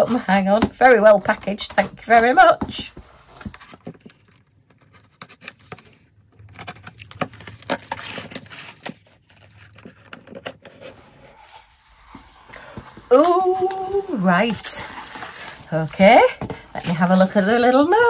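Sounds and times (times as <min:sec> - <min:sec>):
cardboard scraping and rubbing: 0:00.0 - 0:18.0.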